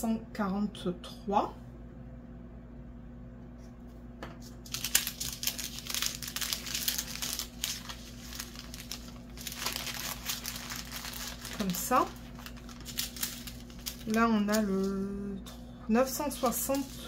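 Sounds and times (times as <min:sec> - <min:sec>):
plastic bags crinkling: 0:04.6 - 0:14.9, 0:16.3 - 0:17.0.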